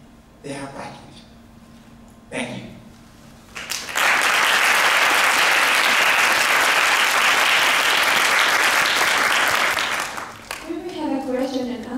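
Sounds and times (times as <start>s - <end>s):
audience applauding: 3.6s - 10.8s.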